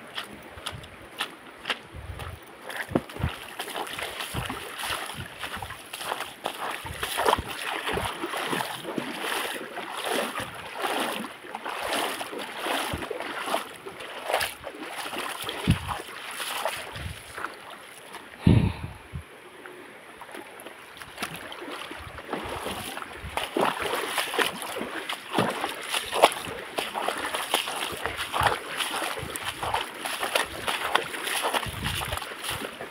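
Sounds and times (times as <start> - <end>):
stream rushing: 0.0 - 18.6, 19.3 - 32.9
footsteps wading through water: 0.0 - 32.9.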